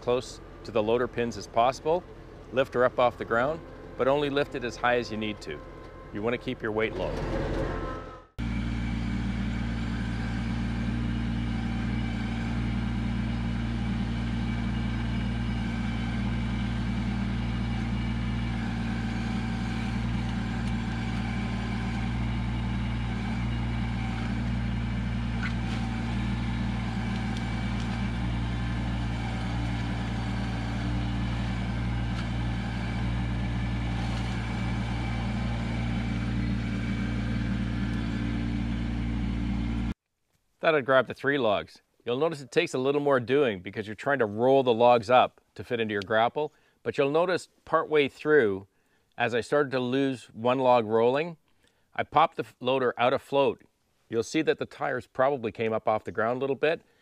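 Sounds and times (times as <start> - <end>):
diesel tractor engine running: 0.0 - 40.0.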